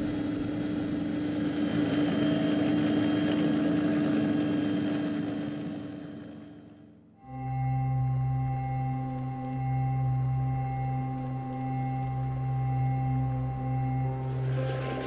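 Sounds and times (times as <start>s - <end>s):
aircraft engine droning: 14.2s - 15.0s.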